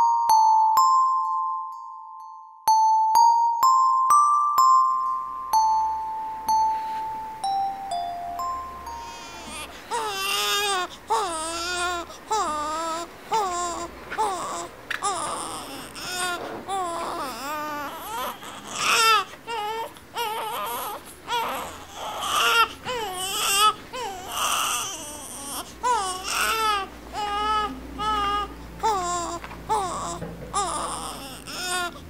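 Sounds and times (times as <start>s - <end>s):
infant crying: 8.8s - 32.0s.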